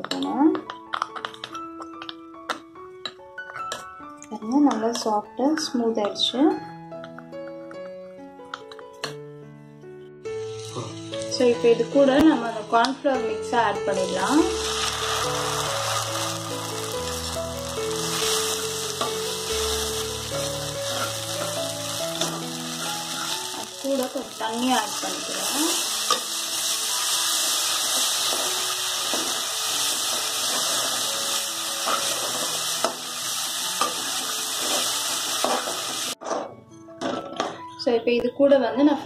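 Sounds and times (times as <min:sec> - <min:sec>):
vegetables sizzling in oil: 0:10.4 - 0:12.6, 0:13.9 - 0:36.2.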